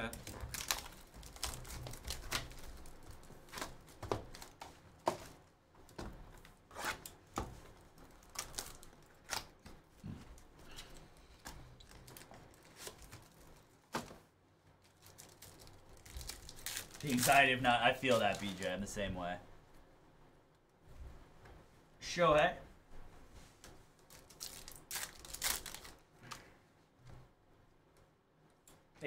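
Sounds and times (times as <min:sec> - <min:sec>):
plastic wrap tearing and crinkling: 0:00.0 - 0:05.4, 0:08.0 - 0:14.1, 0:14.8 - 0:18.8, 0:24.0 - 0:26.4.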